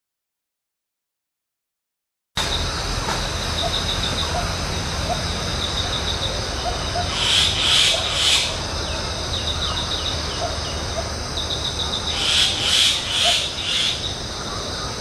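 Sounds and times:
high insect drone: 0:02.4 - 0:15.0
loud rasping calls: 0:03.6 - 0:15.0.

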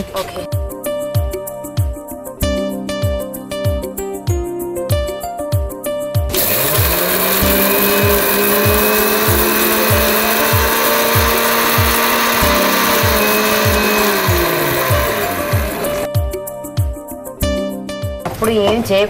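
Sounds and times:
background music with steady beat: 0:00.0 - 0:19.0
electric mixer grinder running: 0:06.3 - 0:16.1.

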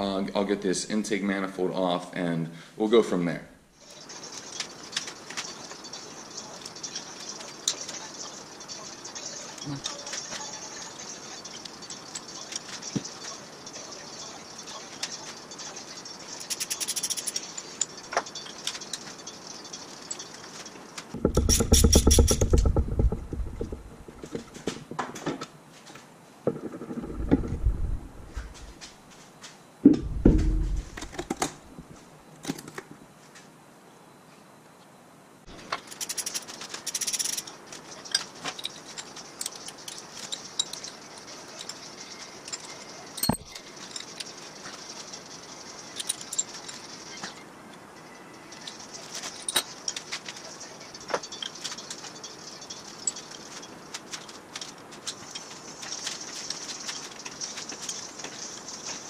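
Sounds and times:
metal clinking: 0:03.8 - 0:25.1, 0:35.5 - 0:59.0
tools being set down: 0:04.4 - 0:25.5, 0:29.9 - 0:33.0, 0:42.4 - 0:44.8, 0:45.9 - 0:47.4, 0:48.5 - 0:59.0
ratchet clicking: 0:16.4 - 0:18.9, 0:21.2 - 0:23.8, 0:35.8 - 0:37.5
low-pitched bursts: 0:26.5 - 0:28.8, 0:29.8 - 0:32.0.

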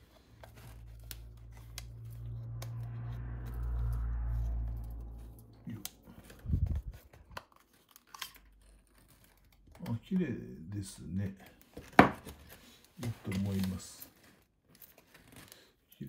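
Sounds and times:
camera handling rumble: 0:06.2 - 0:08.5.

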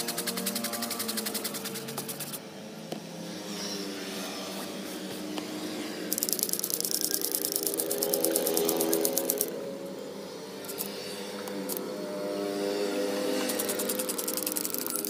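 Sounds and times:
fast ticking beat: 0:06.2 - 0:09.5, 0:13.5 - 0:15.0.

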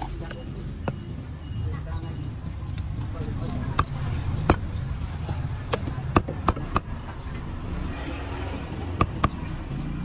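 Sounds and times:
cleaver chopping on wooden board: 0:05.6 - 0:07.0, 0:08.9 - 0:09.5.

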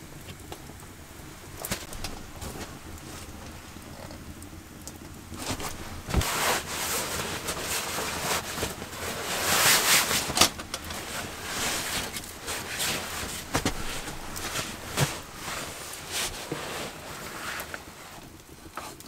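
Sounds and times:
bedding fabric rustling: 0:01.2 - 0:04.0, 0:05.3 - 0:19.0.

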